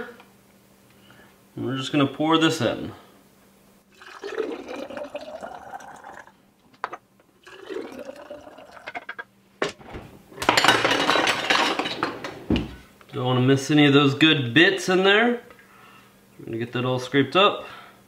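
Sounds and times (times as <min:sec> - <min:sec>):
liquid pouring into glass jars: 0:03.9 - 0:06.4, 0:07.4 - 0:09.2
utensils clattering in a drawer: 0:09.0 - 0:12.8.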